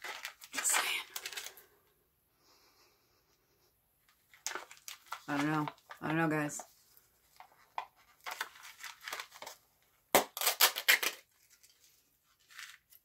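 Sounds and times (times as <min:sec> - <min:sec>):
plastic packet tearing: 0:00.0 - 0:01.6, 0:04.3 - 0:06.1, 0:07.7 - 0:11.8, 0:12.4 - 0:13.0
plastic packet crinkling: 0:00.0 - 0:01.7, 0:04.3 - 0:06.6, 0:07.4 - 0:13.0.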